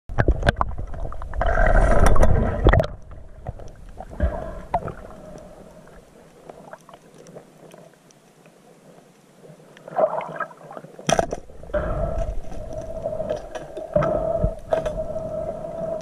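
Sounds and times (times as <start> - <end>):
underwater rushing burbling: 0.1 - 6.0
underwater water noise: 0.1 - 16.0.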